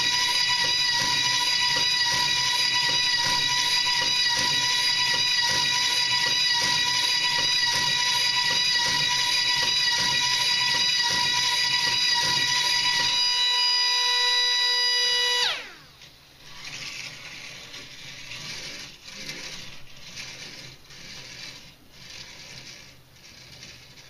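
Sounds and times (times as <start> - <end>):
small propeller motor whining: 0.0 - 24.0
plastic car rattling on track: 16.5 - 24.0.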